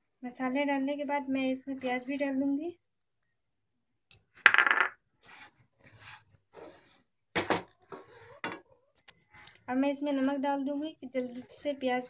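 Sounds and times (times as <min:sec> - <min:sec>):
spatula scraping pan: 0:05.2 - 0:07.0.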